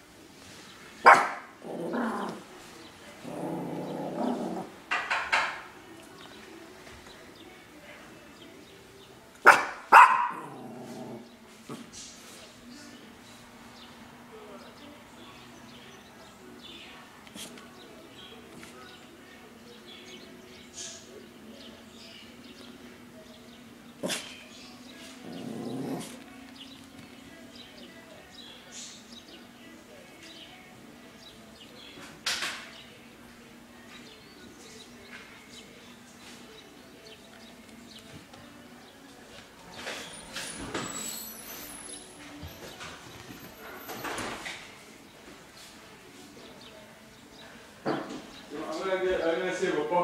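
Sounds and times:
dogs barking: 1.0s - 2.5s, 9.4s - 11.3s, 24.0s - 24.4s
dog barking sharply: 1.1s - 1.5s, 9.5s - 10.5s
dog growling: 1.6s - 2.5s, 3.1s - 4.8s, 10.3s - 11.4s, 25.2s - 26.3s.

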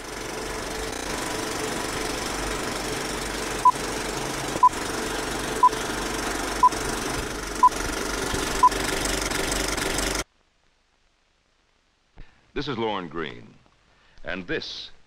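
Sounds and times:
film projector rattling: 0.0s - 10.2s.

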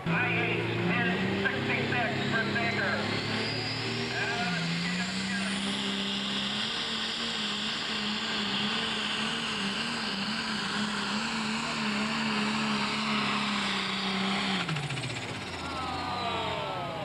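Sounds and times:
diesel engine at full throttle: 0.0s - 17.0s.

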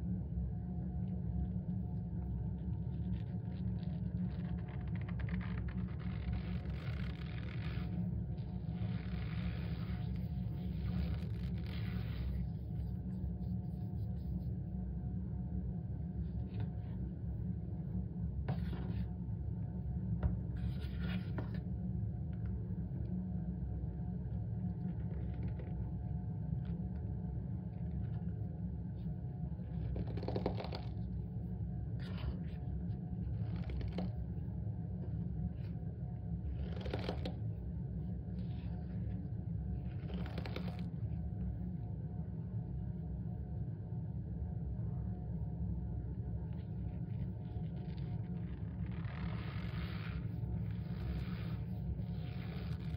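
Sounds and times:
steady low hum: 0.0s - 52.9s.

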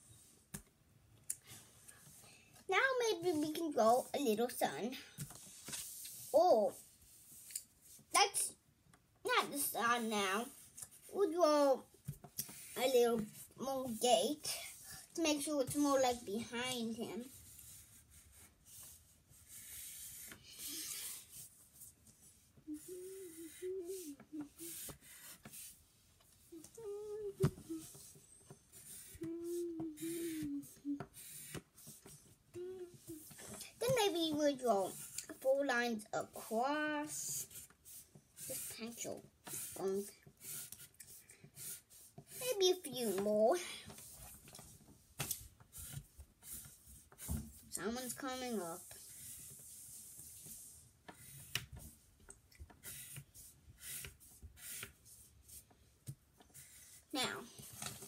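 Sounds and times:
pencil scratching on paper: 12.4s - 14.8s, 15.6s - 25.8s, 27.5s - 32.2s, 33.2s - 44.2s, 45.7s - 51.6s, 52.8s - 55.8s
child humming wordless tones: 22.6s - 24.9s, 26.5s - 28.1s, 29.0s - 31.2s, 32.5s - 33.4s.

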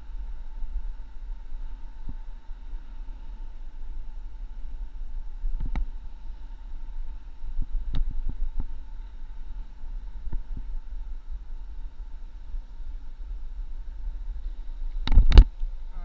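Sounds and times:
faint steady hum: 0.0s - 16.0s
wind rumble on microphone: 0.0s - 16.0s.

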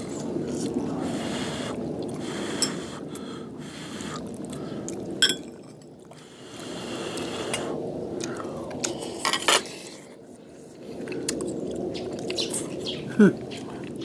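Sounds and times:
metal spoons clinking in bowls: 5.2s - 5.8s.

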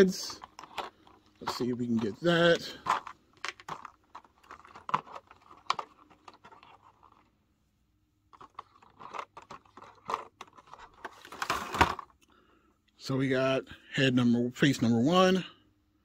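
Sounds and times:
plastic blister tray crackling: 0.0s - 7.3s, 8.3s - 12.1s.

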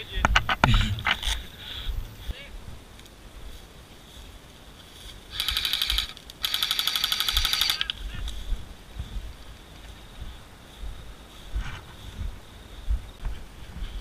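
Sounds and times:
airsoft rifle full-auto bursts: 5.3s - 8.0s.

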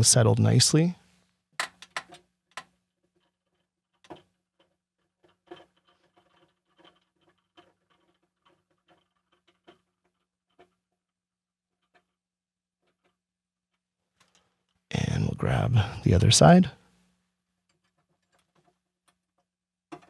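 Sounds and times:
hardware clicking on wooden table: 1.6s - 10.8s.

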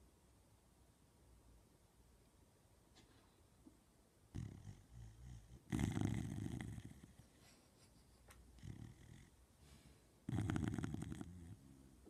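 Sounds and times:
dog snoring: 4.3s - 7.3s, 8.6s - 9.4s, 10.3s - 12.0s.

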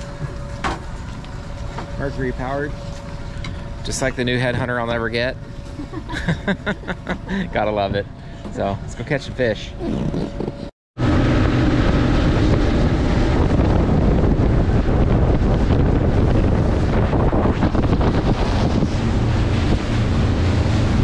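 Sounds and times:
outboard motors running: 0.0s - 21.0s
wind buffeting microphone: 6.6s - 21.0s
water rushing past hull: 11.0s - 21.0s.

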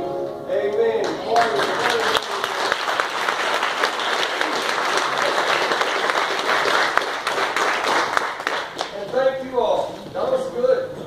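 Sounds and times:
audience applauding: 1.0s - 9.4s.

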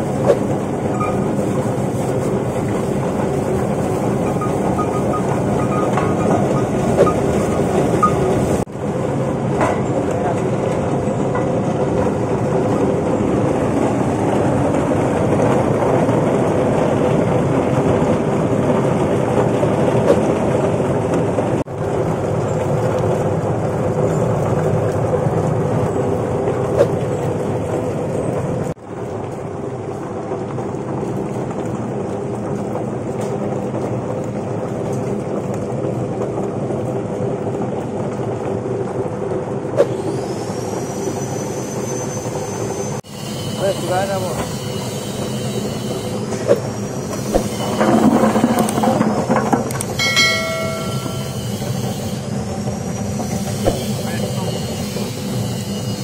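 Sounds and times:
water churning and splashing: 0.0s - 8.7s.

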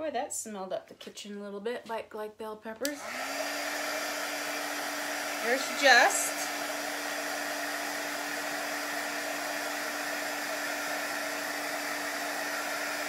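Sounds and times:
handheld dryer blowing: 2.8s - 13.0s.

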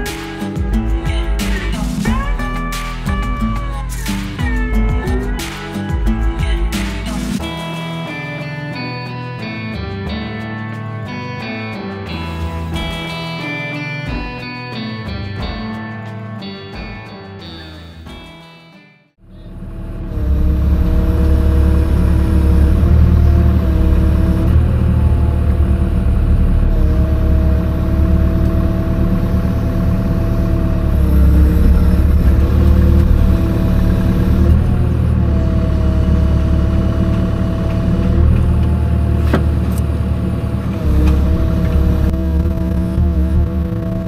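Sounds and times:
excavator diesel engine with hydraulic whine: 19.2s - 44.0s.

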